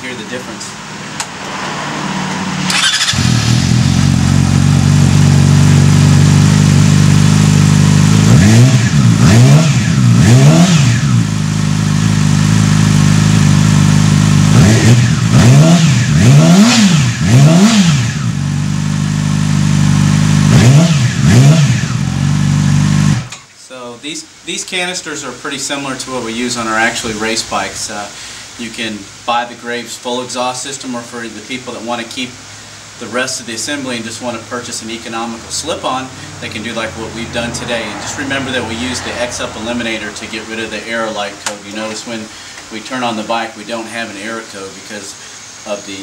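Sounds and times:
motorcycle engine idling: 2.7s - 9.2s, 10.9s - 15.4s, 18.1s - 20.6s.

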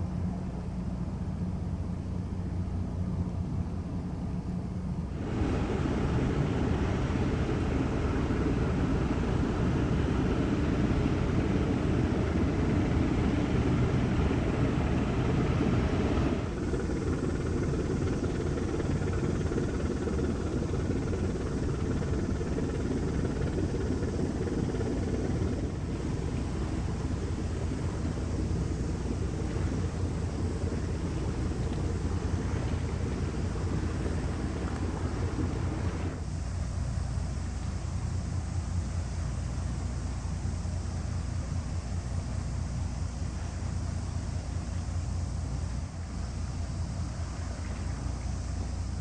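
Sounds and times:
outdoor rumbling and rushing noise: 5.1s - 36.2s.

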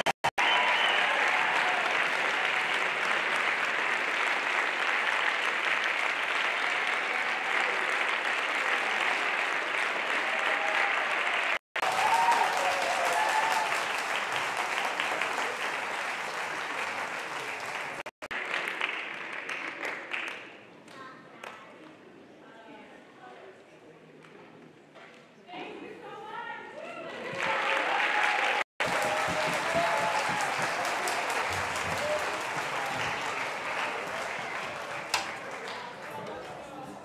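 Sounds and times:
audience applauding: 0.0s - 20.4s, 27.3s - 37.0s.

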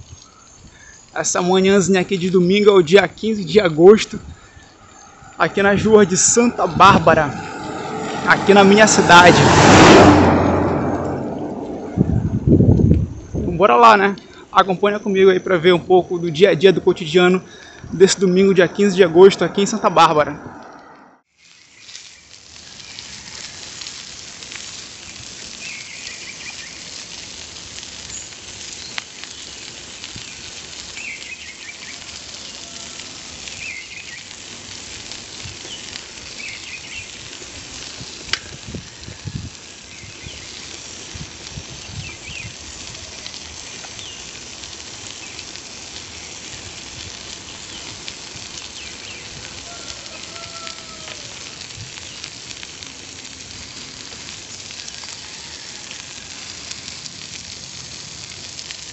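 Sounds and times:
bicycle tyres rolling on asphalt: 0.0s - 58.9s
wind on microphone: 4.1s - 13.6s, 17.8s - 21.2s, 37.6s - 43.4s.

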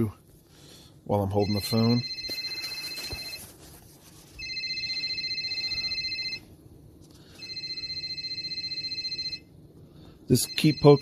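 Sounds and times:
car warning chime ringing: 10.3s - 11.0s.

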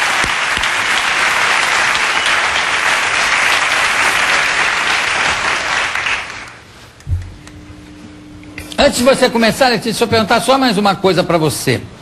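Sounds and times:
studio audience applauding: 0.0s - 6.6s.

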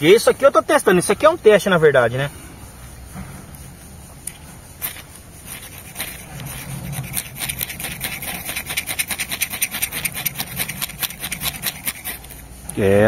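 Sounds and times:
ferro rod scraping strokes: 4.7s - 12.7s.

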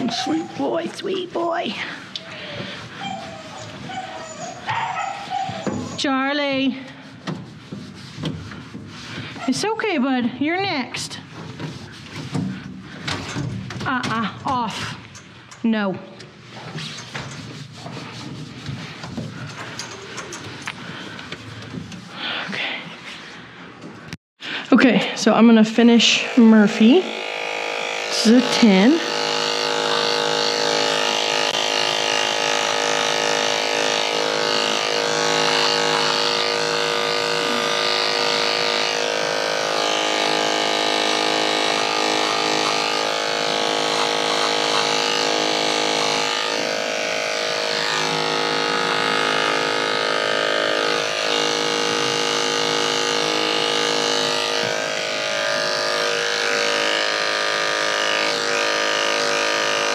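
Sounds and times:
electric clippers buzzing: 0.0s - 3.0s, 25.2s - 59.9s.

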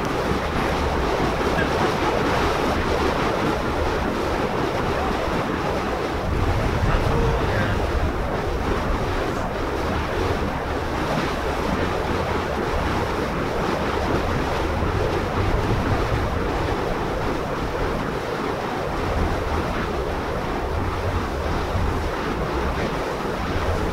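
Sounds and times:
deep rumble: 0.0s - 18.0s
rushing air roar: 0.0s - 23.9s.

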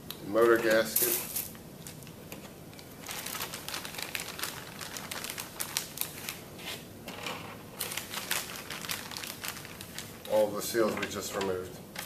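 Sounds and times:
plastic bag crinkling: 2.8s - 6.4s, 7.7s - 10.9s.

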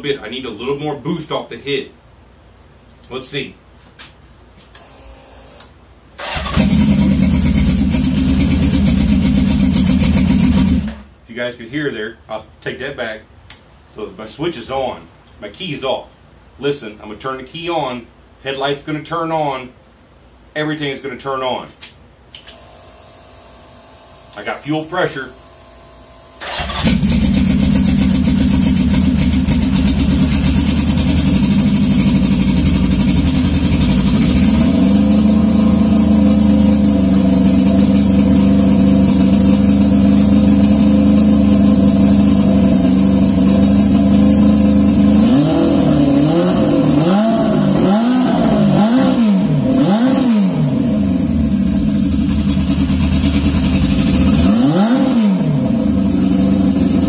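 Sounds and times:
motorcycle engine idling and revving: 6.3s - 11.0s, 26.4s - 57.0s.

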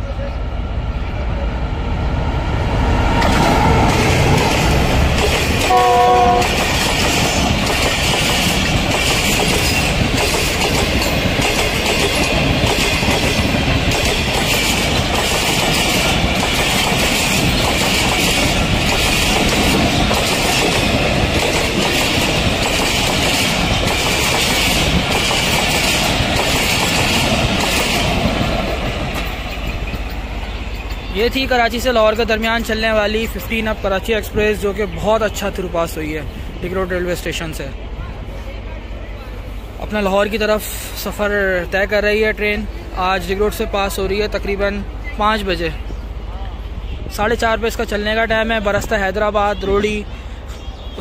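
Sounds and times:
train wheel and rail noise: 0.0s - 51.0s
locomotive horn blast: 5.7s - 6.7s.

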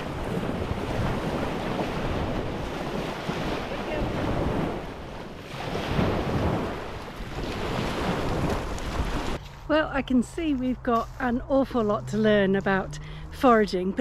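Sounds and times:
waves washing up shingle beach: 0.0s - 9.4s
wind buffeting microphone: 0.0s - 14.0s.

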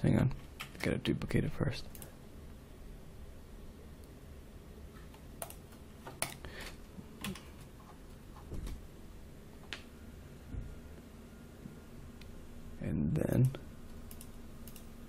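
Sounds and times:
keyboard and mouse clicks: 5.1s - 6.4s, 7.2s - 7.5s, 13.4s - 14.9s.

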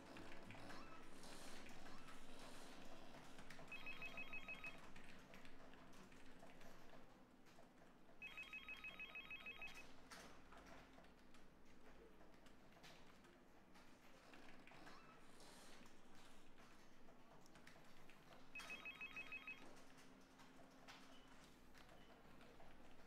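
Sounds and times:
telephone ringing: 3.7s - 4.9s, 8.2s - 9.9s, 18.6s - 19.8s.

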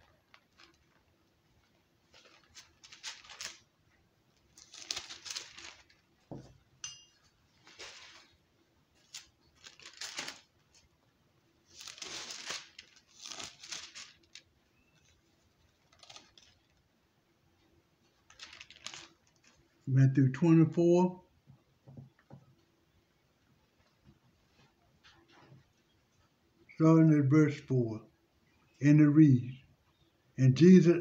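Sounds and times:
book pages rustling: 0.0s - 3.7s, 4.4s - 6.5s, 7.6s - 8.4s, 9.0s - 10.9s, 11.7s - 16.8s, 18.2s - 19.7s.

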